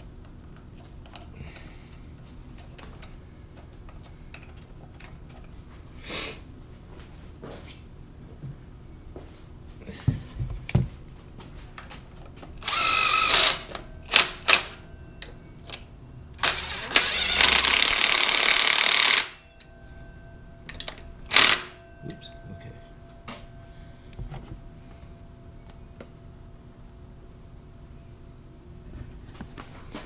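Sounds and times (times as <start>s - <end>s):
cordless power driver whirring: 12.6s - 14.3s, 16.4s - 19.4s.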